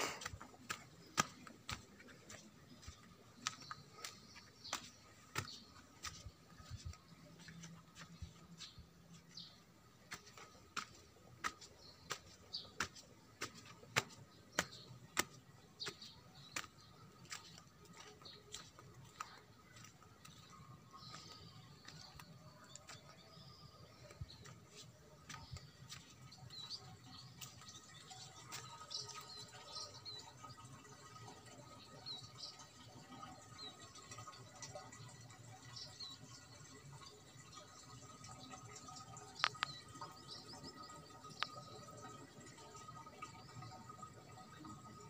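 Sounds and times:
footsteps on stone: 0.0 - 29.9.

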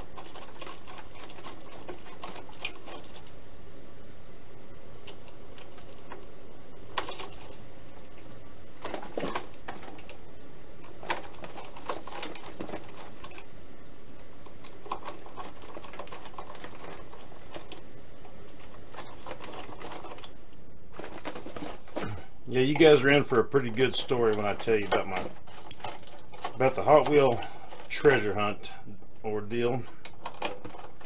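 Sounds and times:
steady background hiss: 0.0 - 31.0.

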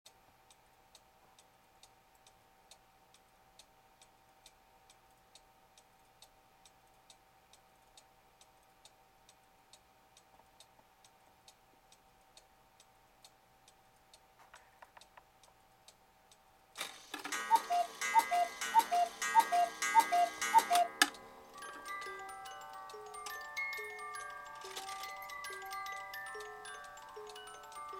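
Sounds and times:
clock ticking: 0.1 - 27.9
clock mechanism clicks: 16.3 - 27.9
clatter of clock works: 16.8 - 27.9
cuckoo calls: 17.2 - 21.1.

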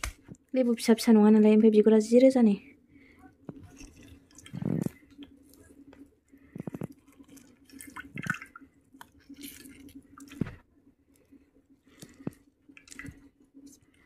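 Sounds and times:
faint steady hum: 0.0 - 14.0
drips into water: 6.7 - 10.5.

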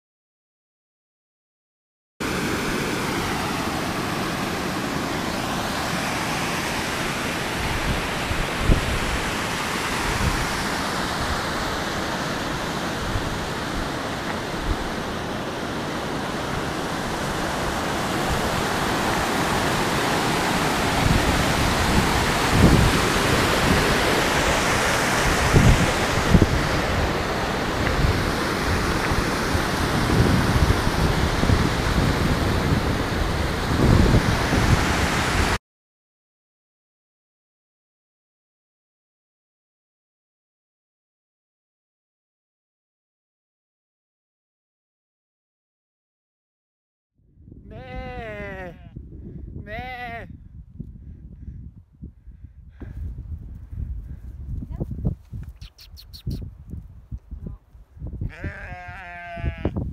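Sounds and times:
mountain torrent rushing: 2.2 - 35.6
wind on microphone: 2.3 - 35.6, 47.2 - 59.9.

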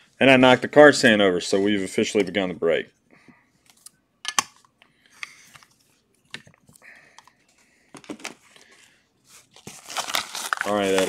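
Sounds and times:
plastic cases clacking: 7.9 - 8.5
bubble mailer rustling: 8.0 - 11.0.

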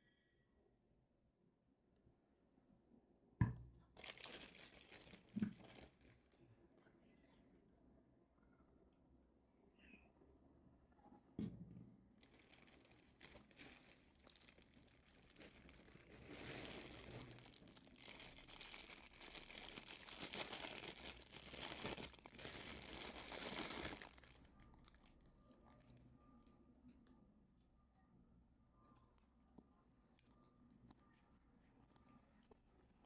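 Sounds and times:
plastic bag crinkling: 4.0 - 6.4, 12.2 - 26.0.

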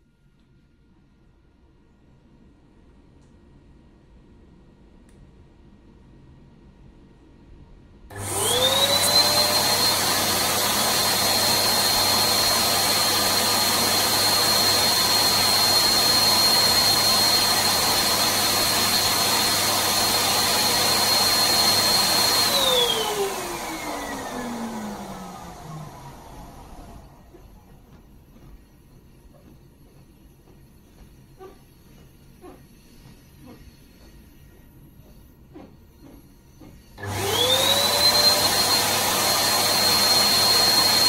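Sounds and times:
balloon pump motor whine: 8.1 - 28.0, 35.0 - 41.0.

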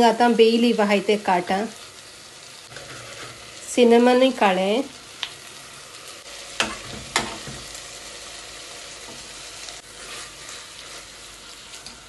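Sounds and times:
masala sizzling in a pressure cooker: 0.0 - 12.0
metal spatula stirring: 9.8 - 12.0.

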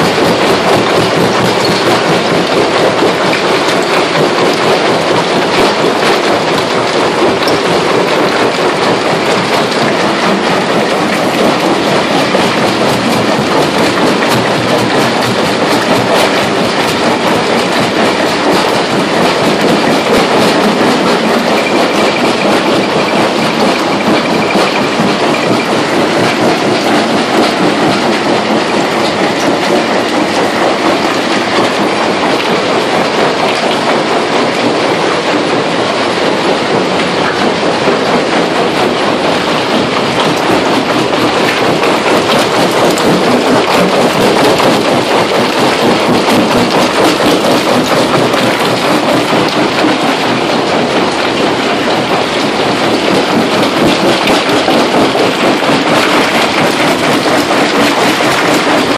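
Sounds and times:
stone crusher clattering: 0.0 - 34.7
running machinery: 0.0 - 58.9.

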